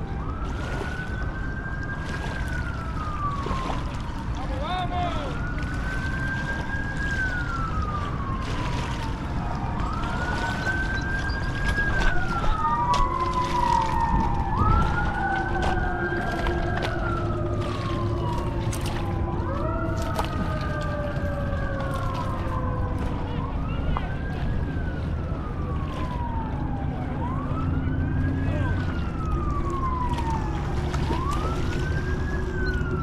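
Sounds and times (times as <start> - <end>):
emergency vehicle siren wailing: 0.0 - 33.0.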